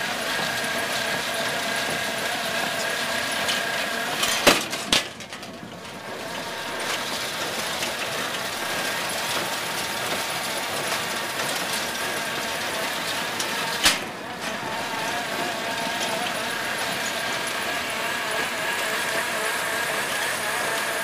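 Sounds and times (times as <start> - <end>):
loud metal clanks: 4.2 - 6.0.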